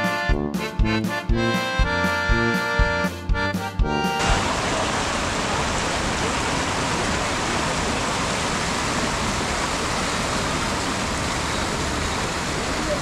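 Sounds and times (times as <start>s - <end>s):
river rushing: 4.2s - 13.0s.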